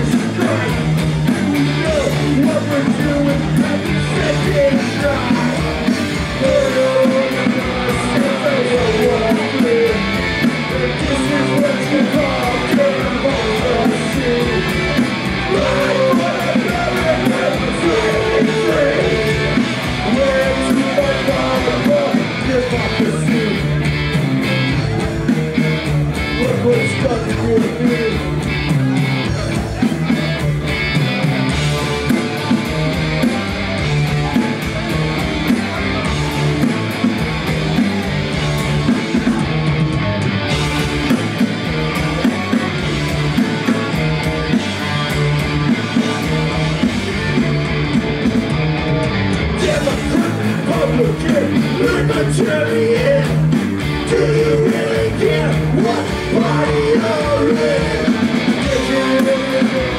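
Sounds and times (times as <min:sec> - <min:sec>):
person singing: 0:00.0 - 0:23.8, 0:49.6 - 0:59.9
bass guitar: 0:00.0 - 0:59.9
distorted electric guitars: 0:00.0 - 0:59.9
driving drums: 0:00.0 - 0:59.9.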